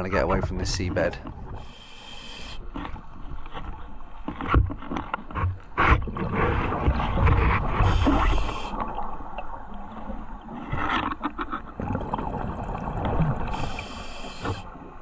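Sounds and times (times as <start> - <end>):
regulator hissing inhale: 1.6 - 2.6, 13.5 - 14.7
exhaled bubbles underwater: 6.0 - 10.7, 11.7 - 14.7.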